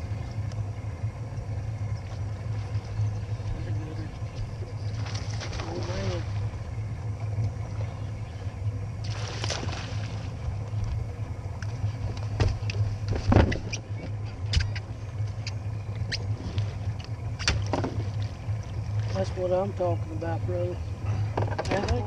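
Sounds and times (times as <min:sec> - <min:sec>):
low motor hum: 0:00.0 - 0:22.0
knocks on boat: 0:12.3 - 0:14.2, 0:17.5 - 0:18.1.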